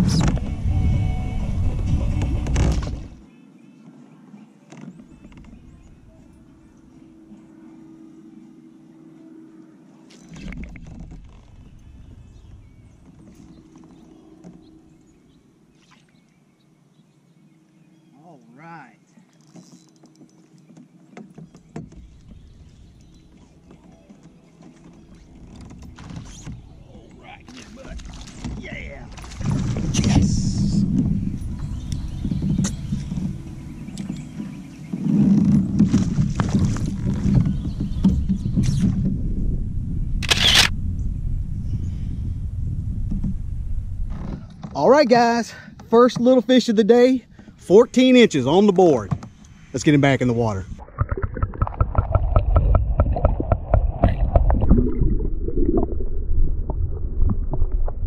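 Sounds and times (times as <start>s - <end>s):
low rumble: 29.0s - 34.5s, 35.2s - 44.6s, 50.6s - 58.0s.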